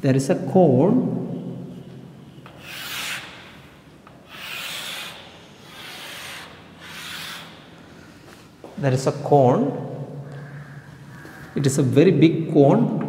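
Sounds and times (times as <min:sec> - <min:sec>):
chalk scraping on a chalkboard: 0:02.4 - 0:07.8.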